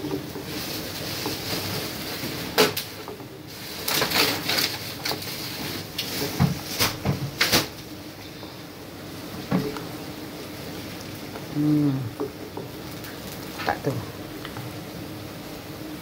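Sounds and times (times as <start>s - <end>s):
wooden spoon stirring in clay pot: 0.0s - 6.8s, 7.8s - 15.8s.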